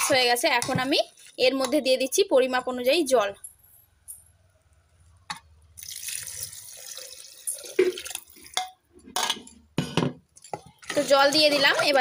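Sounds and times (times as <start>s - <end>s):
water pouring into a pot: 5.8s - 8.6s.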